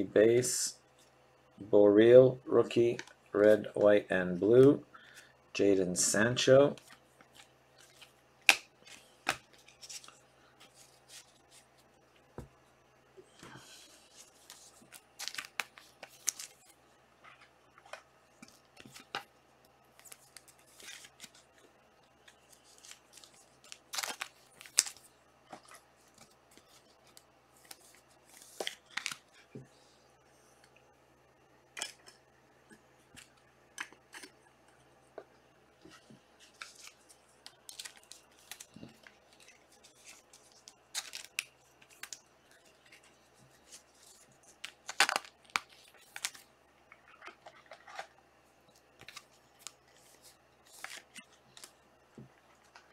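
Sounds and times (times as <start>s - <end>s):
foil wrappers rustling: 36.4s - 46.5s.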